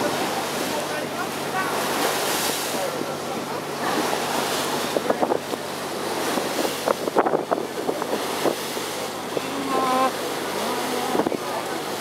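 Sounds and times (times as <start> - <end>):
boat engine drone: 0.0 - 12.0
water splashing along hull: 0.0 - 12.0
wind rushing over microphone: 4.8 - 10.2.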